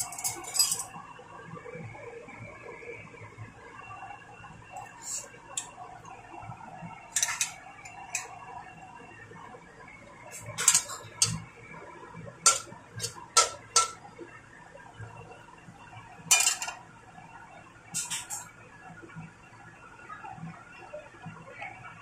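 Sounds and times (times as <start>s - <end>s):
metal spatula scraping a wok: 0.0s - 0.9s, 7.2s - 7.6s, 10.4s - 11.4s, 12.5s - 14.0s, 18.0s - 18.4s.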